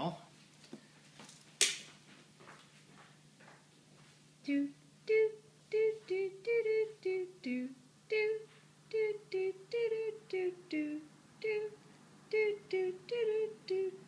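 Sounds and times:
person humming a quick tune: 4.4s - 14.0s.

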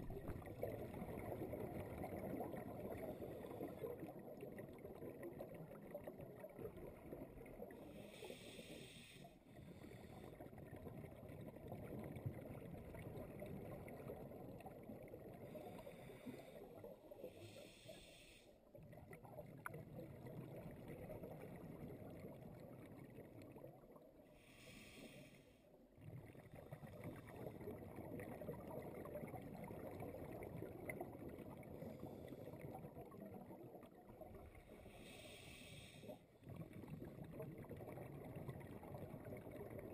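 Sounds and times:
water rumble against camera housing: 0.0s - 0.6s
exhaled bubble bursts: 0.0s - 7.8s, 25.9s - 34.9s, 36.4s - 39.9s
underwater regulator breathing: 7.9s - 10.4s, 15.5s - 18.6s, 24.4s - 25.6s, 34.7s - 36.3s.

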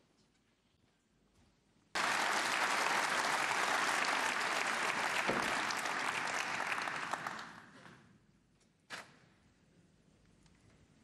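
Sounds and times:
audience applauding: 2.0s - 7.9s.

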